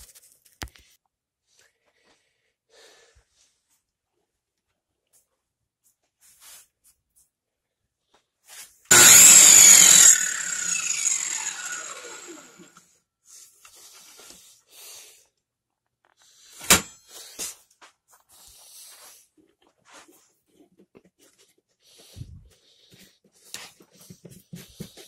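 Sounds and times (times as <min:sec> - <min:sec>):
circular saw whine: 0:08.9 - 0:12.8.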